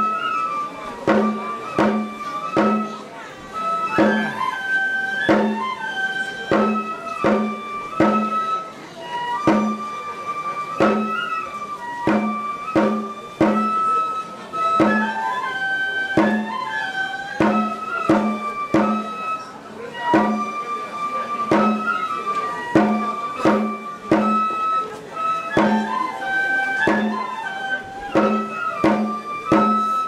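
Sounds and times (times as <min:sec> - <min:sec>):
flute sliding melody: 0:00.0 - 0:30.0
steady drum beat: 0:12.1 - 0:13.7.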